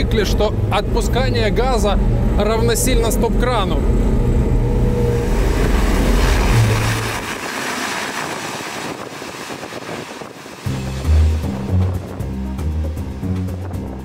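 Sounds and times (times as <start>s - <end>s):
vehicle engine humming: 0.0s - 14.0s
water spray from tyres: 5.4s - 10.7s.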